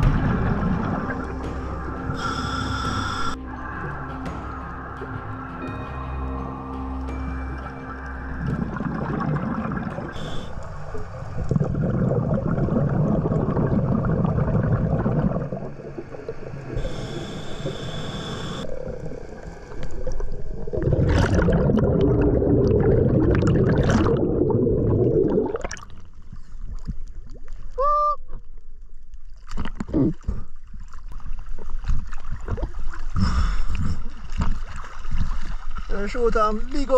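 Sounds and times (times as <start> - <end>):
exhaled bubbles rushing underwater: 0.0 - 5.5, 7.4 - 26.1.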